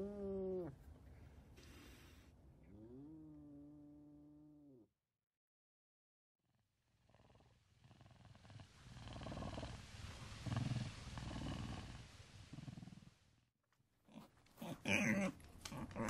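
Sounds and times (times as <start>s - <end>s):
low rough animal growl: 7.0s - 13.2s.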